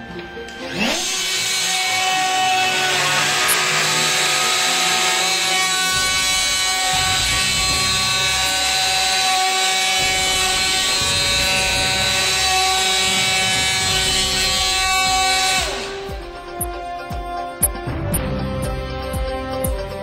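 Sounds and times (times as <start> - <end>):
router cutter milling wood: 0.0 - 19.9
electric router whining: 0.0 - 20.0.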